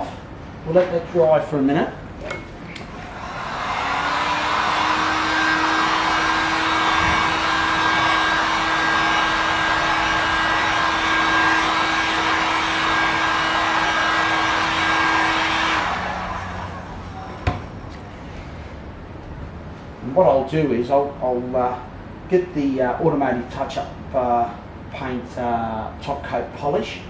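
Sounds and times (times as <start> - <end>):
heat gun blowing with fan hum: 2.2 - 18.1.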